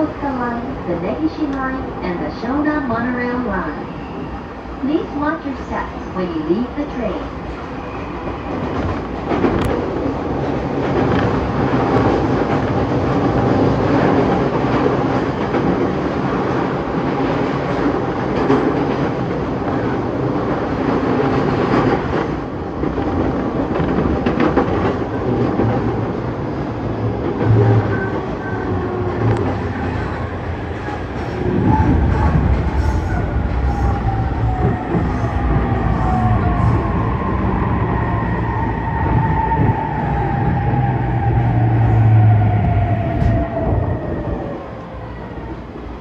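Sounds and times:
train wheels rumbling on rails: 0:00.0 - 0:46.0.

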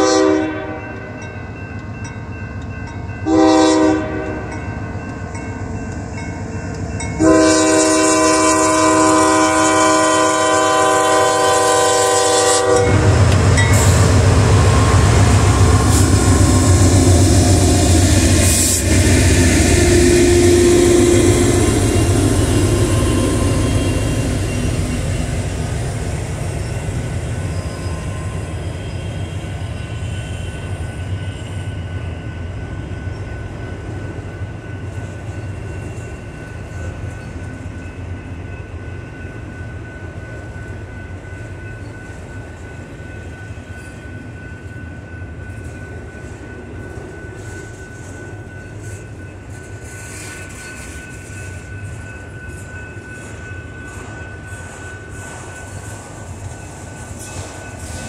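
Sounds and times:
locomotive chord horn blast: 0:00.0 - 0:01.0, 0:03.2 - 0:04.6, 0:07.2 - 0:26.3
train cars rolling by: 0:00.0 - 0:58.0
locomotive engine rumbling: 0:02.6 - 0:31.5.

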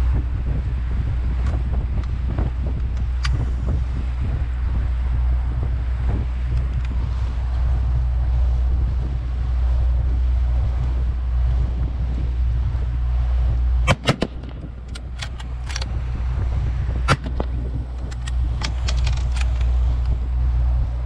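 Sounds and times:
outboard motor running: 0:00.0 - 0:21.0
sharp knocks and clicks: 0:17.0 - 0:19.7.

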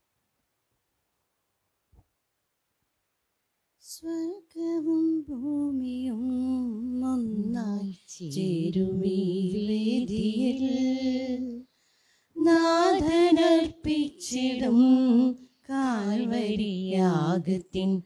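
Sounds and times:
woman singing a hymn: 0:03.9 - 0:11.6, 0:12.4 - 0:18.0.

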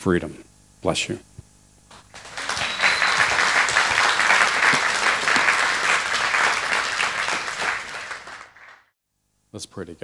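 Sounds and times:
crowd applauding: 0:01.9 - 0:08.9.

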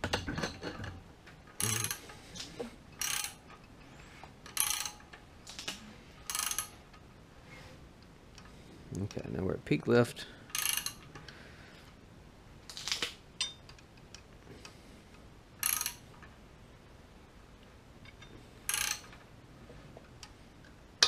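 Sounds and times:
ratchet wrench clicking: 0:01.6 - 0:02.0, 0:03.0 - 0:03.4, 0:06.3 - 0:06.7, 0:10.5 - 0:11.0, 0:15.6 - 0:16.0, 0:18.7 - 0:19.1.

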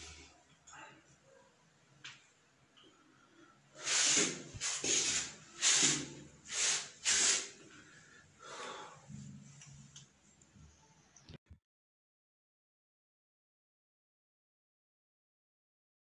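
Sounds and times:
heavy hissing breaths: 0:03.8 - 0:09.2.

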